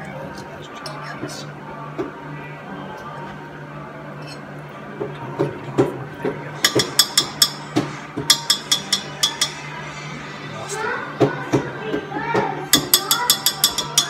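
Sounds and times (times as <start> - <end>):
faint background music: 0.0 - 14.0
utensil clinking against pot: 6.6 - 7.7, 8.3 - 9.7, 12.7 - 14.0.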